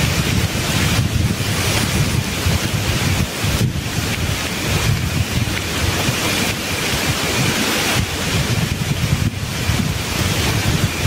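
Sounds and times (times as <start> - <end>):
wind buffeting microphone: 0.0 - 11.0
wind rustling leaves: 0.0 - 11.0.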